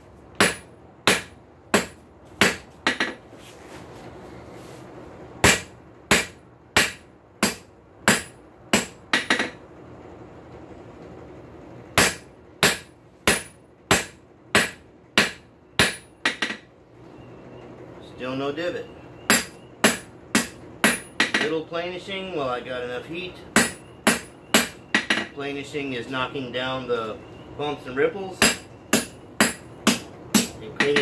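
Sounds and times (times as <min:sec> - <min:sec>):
hammer striking steel on anvil: 0:00.4 - 0:03.2, 0:05.4 - 0:09.6, 0:12.0 - 0:16.6, 0:19.3 - 0:21.6, 0:23.6 - 0:25.3, 0:28.4 - 0:31.0.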